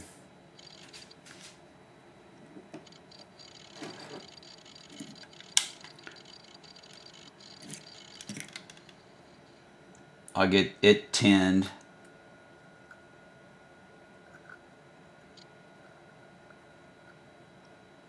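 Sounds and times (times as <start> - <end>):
sharp click: 5.4 - 6.0.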